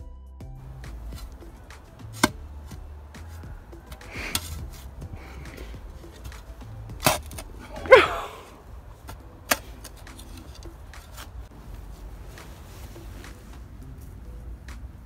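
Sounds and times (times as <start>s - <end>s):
spade digging soil: 0.8s - 13.4s
spade scrapes and knocks: 2.1s - 8.4s.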